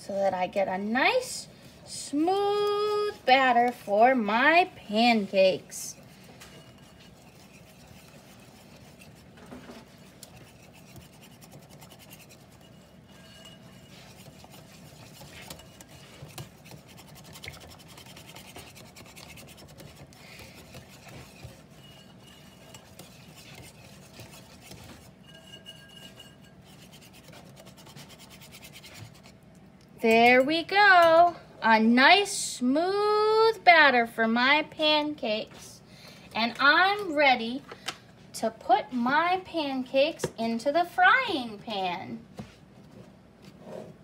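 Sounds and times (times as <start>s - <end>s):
wire whisk beating batter in bowl: 2.0s - 29.4s.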